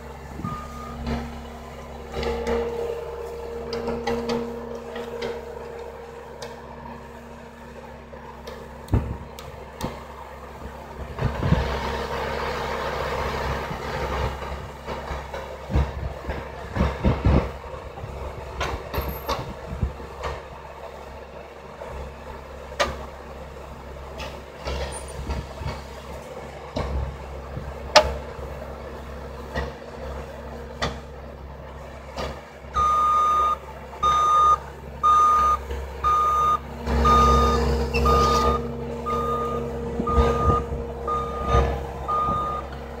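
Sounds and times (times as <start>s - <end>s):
diesel engine running: 0.0s - 43.0s
backup alarm beeping: 0.4s - 1.0s, 32.8s - 42.7s.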